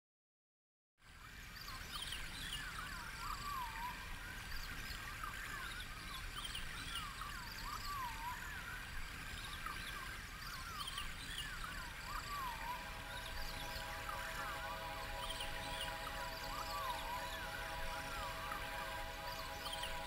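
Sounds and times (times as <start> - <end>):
steady hiss and low rumble: 1.2 - 20.0
bird-like whistled calls: 10.6 - 20.0.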